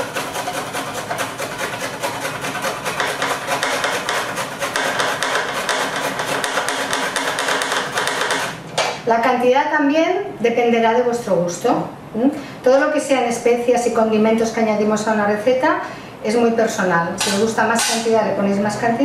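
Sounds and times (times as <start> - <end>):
ginger rasping on metal grater: 0.0 - 8.6.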